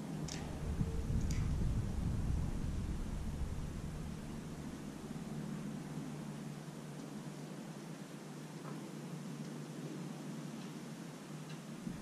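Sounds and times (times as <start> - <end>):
low outdoor rumble: 0.0 - 9.2, 11.6 - 12.0
soft hiss: 0.0 - 12.0.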